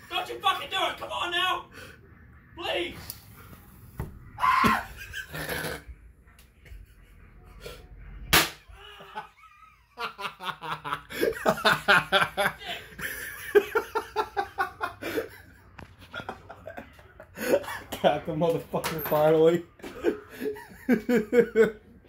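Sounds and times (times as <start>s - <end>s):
man laughing: 8.8s - 15.4s.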